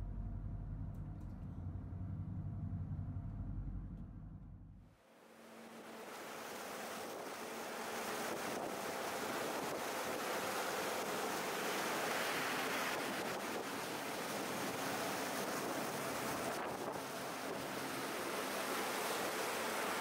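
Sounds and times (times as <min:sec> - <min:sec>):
water churning in boat wake: 0:05.3 - 0:20.0.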